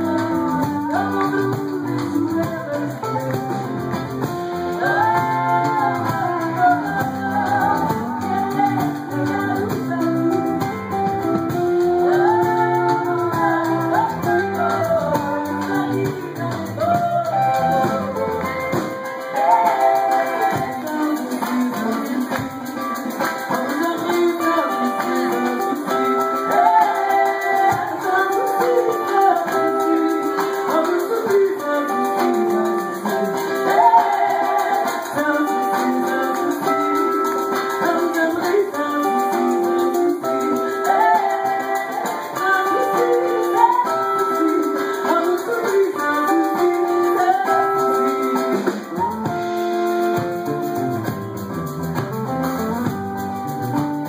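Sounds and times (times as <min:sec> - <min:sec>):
woman singing: 0:00.0 - 0:49.4
live band playing: 0:00.0 - 0:54.0
man singing: 0:19.4 - 0:49.1.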